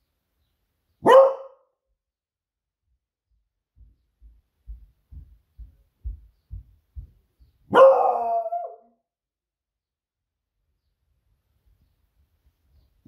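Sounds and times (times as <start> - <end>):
dog barking: 1.0 - 1.7, 7.7 - 9.0
soft low thumps: 2.8 - 8.2.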